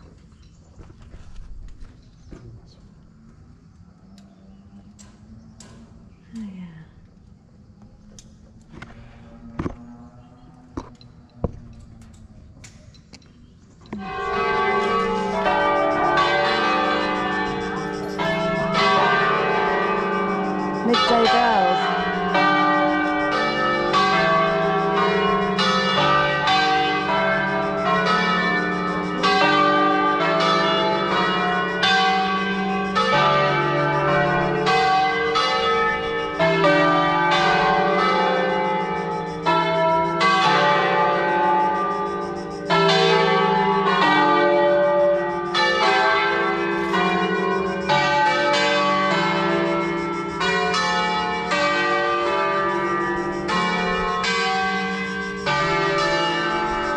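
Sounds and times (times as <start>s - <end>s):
church bells ringing: 13.9s - 56.9s.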